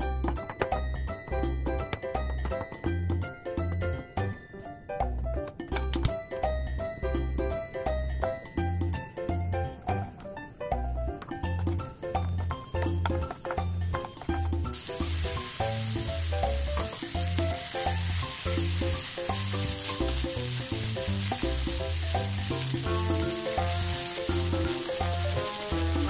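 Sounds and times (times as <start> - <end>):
wooden spoon stirring: 12.8 - 26.0
food sizzling in a frying pan: 14.6 - 26.0.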